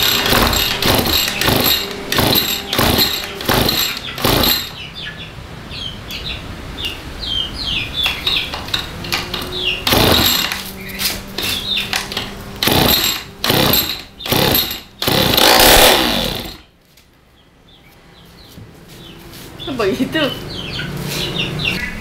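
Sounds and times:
recoil starter pulls cranking engine: 0.0s - 4.8s, 8.2s - 10.8s, 11.4s - 16.6s.

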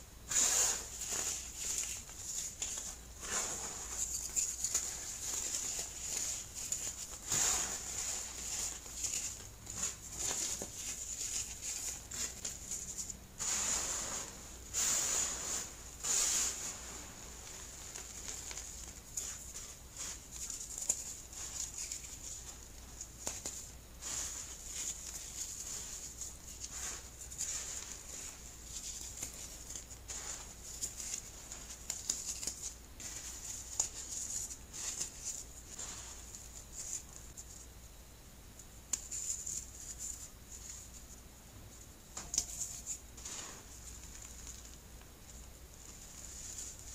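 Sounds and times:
baking soda crunching: 24.0s - 37.1s.

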